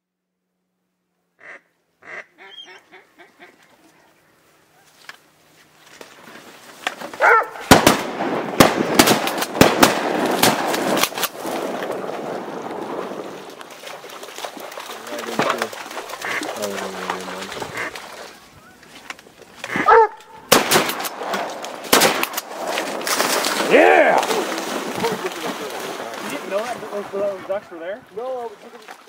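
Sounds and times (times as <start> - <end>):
ducks quacking: 1.4 - 5.0, 14.0 - 20.6
shotgun blasts: 7.2 - 13.0, 20.5 - 24.4.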